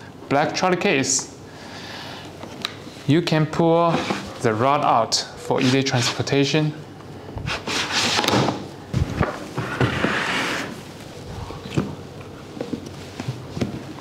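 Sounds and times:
plastic case scraping on table: 9.6s - 10.8s.

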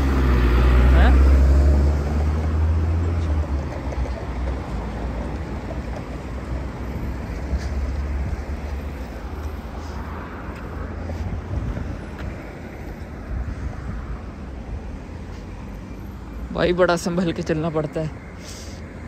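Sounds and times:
road traffic noise: 0.0s - 19.0s
wind rumbling on microphone: 7.3s - 15.3s.

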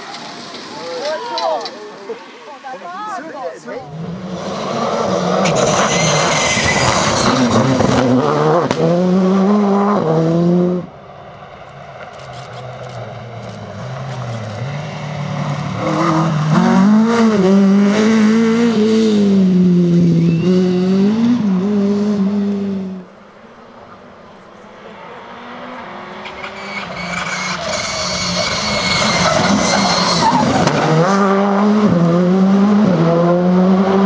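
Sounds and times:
rally car approaching: 3.6s - 34.0s
rally car engine high revs: 3.9s - 10.9s, 12.6s - 23.1s, 25.0s - 34.0s.

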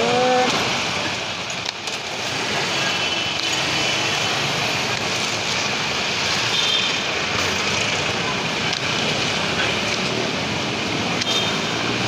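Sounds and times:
street traffic: 0.0s - 12.0s.

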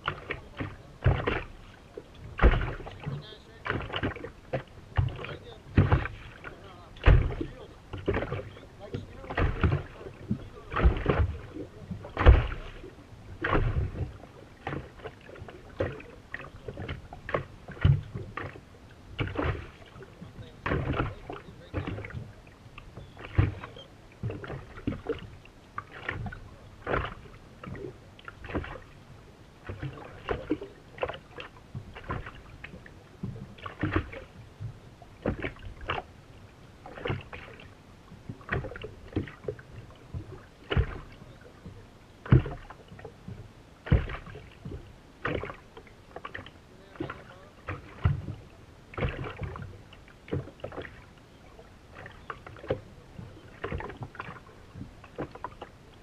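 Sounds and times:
water knocking against boat hull: 0.0s - 28.9s, 29.6s - 36.1s, 36.8s - 51.1s, 51.9s - 56.0s.

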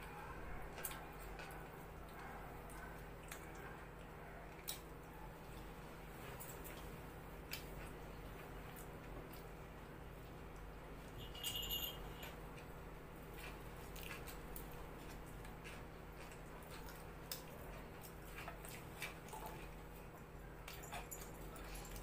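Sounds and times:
ringing clink: 11.2s - 12.4s.

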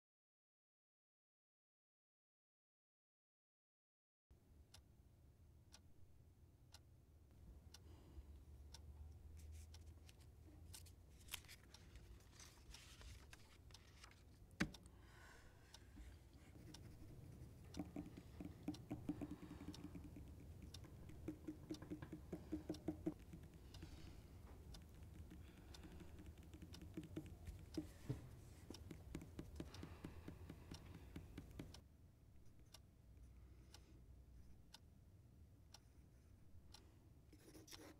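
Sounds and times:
light ticks and clicks: 8.7s - 15.0s, 15.7s - 31.8s.

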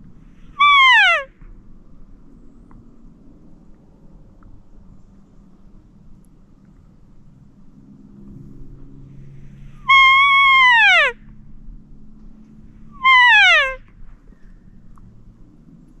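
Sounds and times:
elk mewing calls: 0.6s - 1.3s, 9.9s - 11.2s, 13.0s - 13.8s.

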